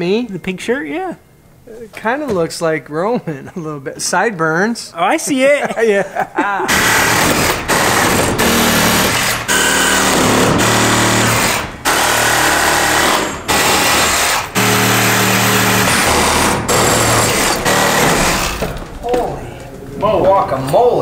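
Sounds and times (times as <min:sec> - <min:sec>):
impact driver hammering: 0:06.7 - 0:19.0.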